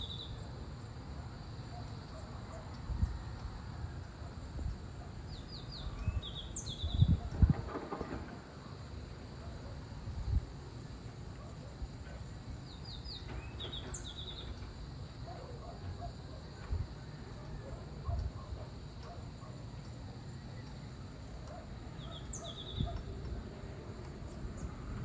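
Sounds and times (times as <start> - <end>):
bird chirping: 5.3 - 7.2, 12.6 - 14.7, 19.8 - 23.1.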